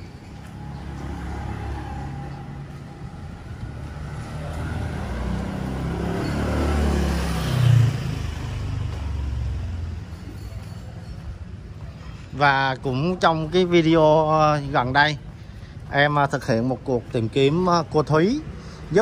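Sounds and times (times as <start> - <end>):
motor vehicle passing: 0.0 - 10.2.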